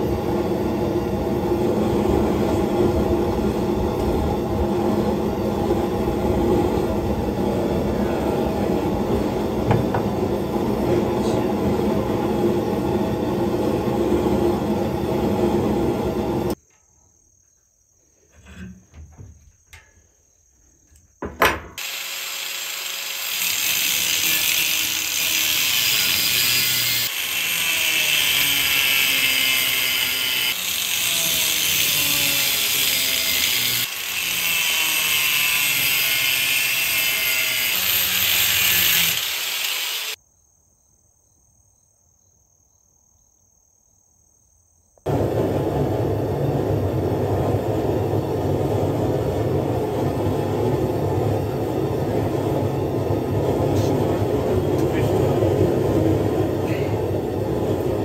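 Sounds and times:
rumbling drone: 0.0 - 16.6, 45.1 - 58.0
angle grinder cutting steel: 21.8 - 40.2.

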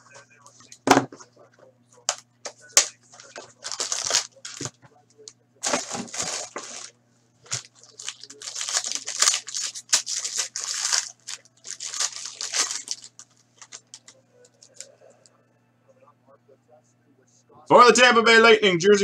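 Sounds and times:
cards rustling: 2.7 - 4.8, 5.6 - 14.9
foil wrapper crinkling: 2.7 - 4.8, 5.6 - 14.9.

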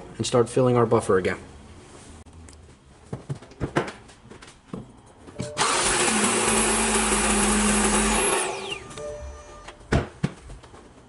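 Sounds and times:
car engine starter whirring: 5.4 - 9.1.

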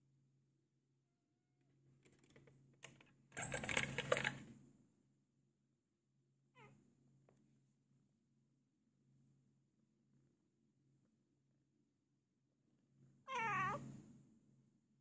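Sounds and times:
cat meowing: 13.3 - 13.9.

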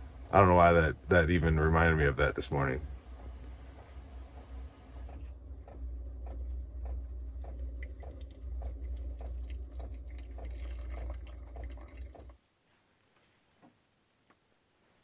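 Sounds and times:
low steady hum: 0.0 - 15.0
hot water trickling and dripping: 5.5 - 12.4.

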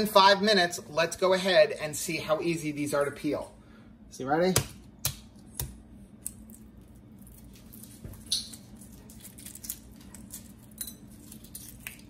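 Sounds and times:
egg shell crackling when peeled: 5.4 - 12.0.

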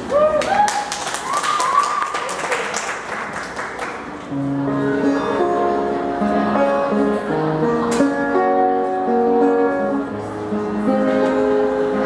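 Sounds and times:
people clapping: 0.0 - 4.4
acoustic guitar picking notes: 4.4 - 12.0.

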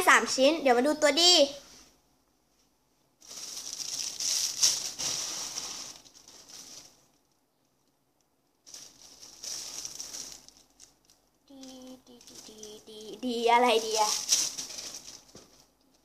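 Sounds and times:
hands rummaging through squishy toys: 3.2 - 7.1, 8.6 - 16.0.

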